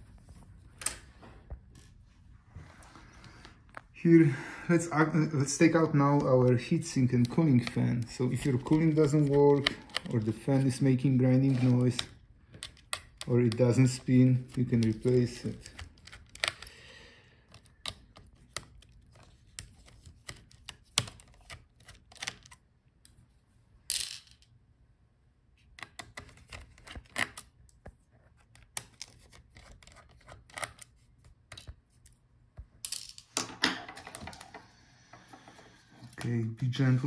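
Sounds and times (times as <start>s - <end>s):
small parts clattering: 32.8s - 35.7s.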